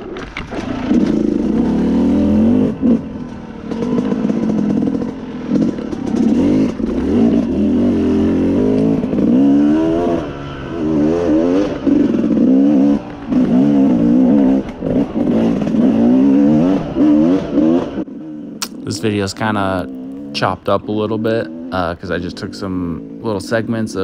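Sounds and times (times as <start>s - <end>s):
dirt bike engine revving: 0.0s - 24.0s.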